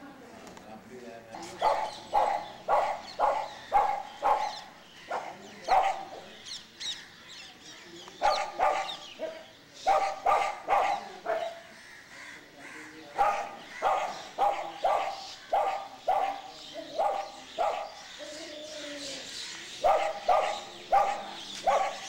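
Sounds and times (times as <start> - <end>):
dog barking: 1.5 - 6.4, 8.2 - 11.6, 13.2 - 18.1, 19.8 - 22.0.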